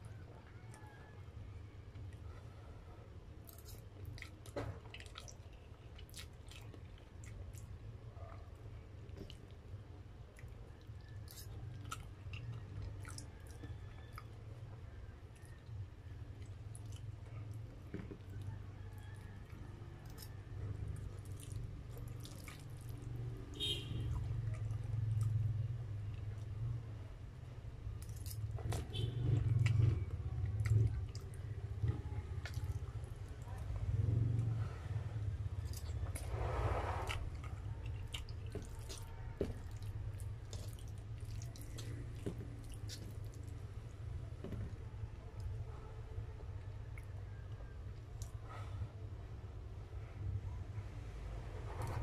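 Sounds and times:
slurping noodles: 0:35.9 - 0:39.0.

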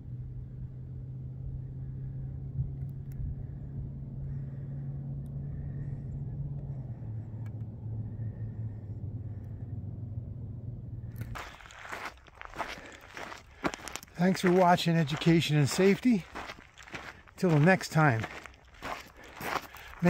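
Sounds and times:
vehicle engine humming: 0:00.0 - 0:20.0.

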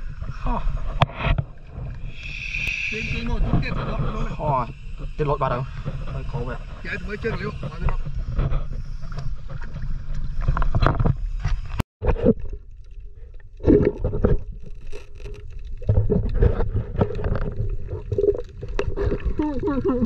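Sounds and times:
muffled underwater gurgling and knocking: 0:02.9 - 0:11.2.

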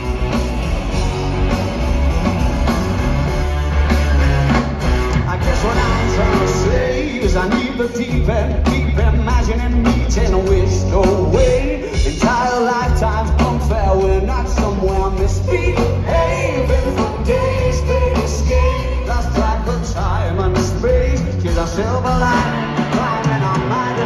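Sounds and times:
bass guitar: 0:00.0 - 0:24.0
drum kit: 0:00.0 - 0:24.0
electric guitars: 0:00.0 - 0:24.0.

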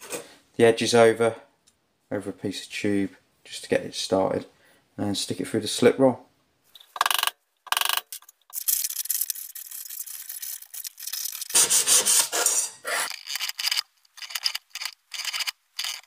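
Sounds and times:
cloth rubbing sheet metal: 0:11.5 - 0:13.1.

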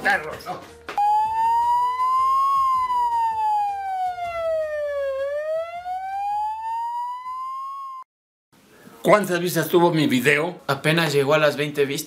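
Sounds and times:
wailing siren: 0:01.0 - 0:08.1.

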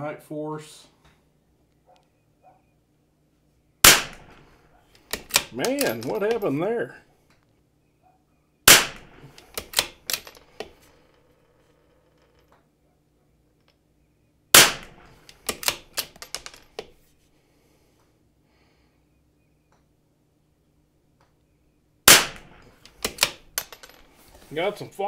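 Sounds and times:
rifle shots: 0:03.8 - 0:04.5, 0:08.7 - 0:10.0, 0:14.5 - 0:15.8, 0:22.0 - 0:23.4.

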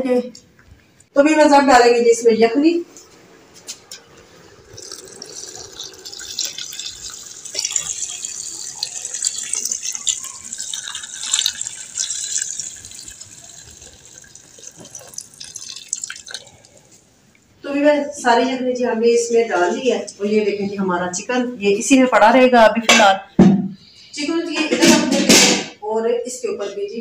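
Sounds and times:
stock pouring through strainer: 0:04.7 - 0:16.9.

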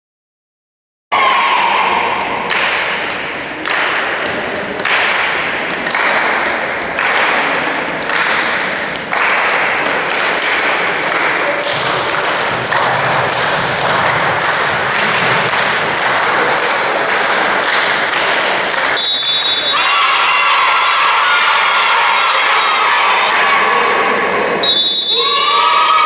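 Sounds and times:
crowd applauding: 0:04.8 - 0:19.0.

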